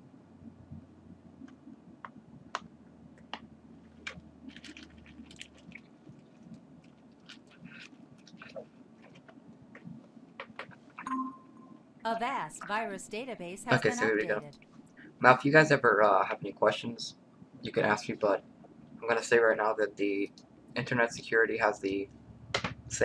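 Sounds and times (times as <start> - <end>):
low room hum: 0.0 - 23.0
small clicks and crackles: 1.4 - 11.0.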